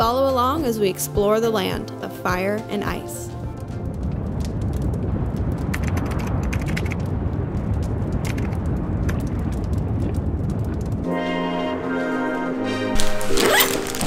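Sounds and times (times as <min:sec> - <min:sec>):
deep volcanic rumble: 0:00.0 - 0:11.6
sharp crackles: 0:02.7 - 0:11.2, 0:13.0 - 0:14.0.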